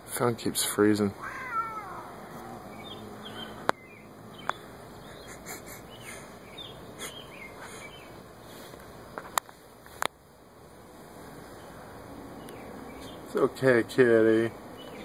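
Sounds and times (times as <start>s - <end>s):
faint bird chirps: 1.4s - 8.2s.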